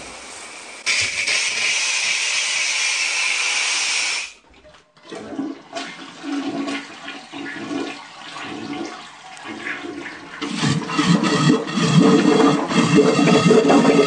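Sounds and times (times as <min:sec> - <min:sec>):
shower head hissing: 0:00.0 - 0:04.4
water gurgling in a toilet: 0:00.0 - 0:14.0.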